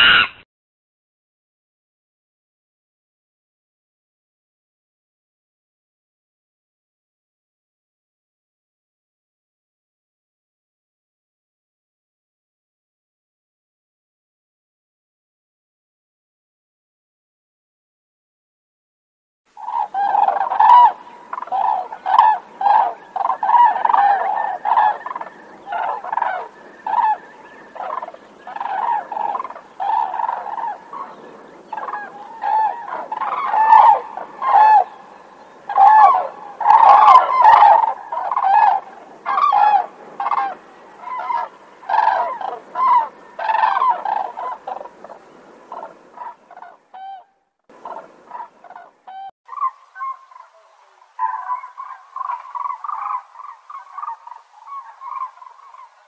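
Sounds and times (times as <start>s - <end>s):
cranes calling: 0.0s - 0.4s, 19.6s - 56.0s.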